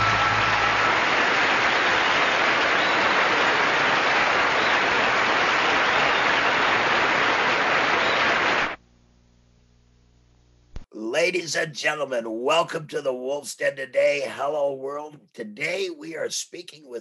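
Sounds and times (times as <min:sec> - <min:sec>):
audience applauding: 0:00.0 - 0:08.8.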